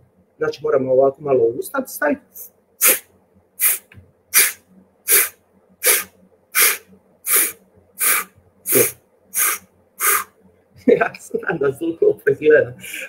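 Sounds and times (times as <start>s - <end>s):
sharp breath puffs: 2.8s - 10.4s.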